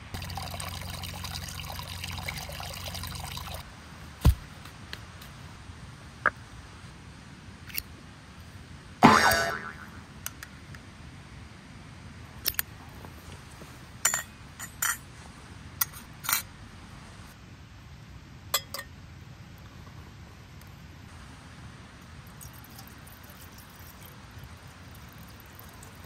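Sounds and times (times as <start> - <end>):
metal cookware clank: 18.6 - 18.9.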